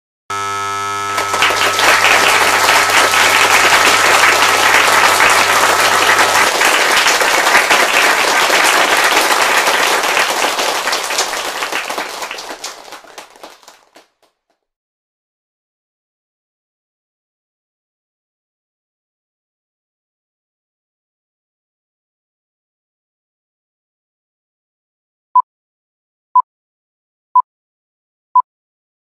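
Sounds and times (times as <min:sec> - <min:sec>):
steady buzzing tone: 0:00.3 - 0:06.8
audience applause: 0:01.0 - 0:14.3.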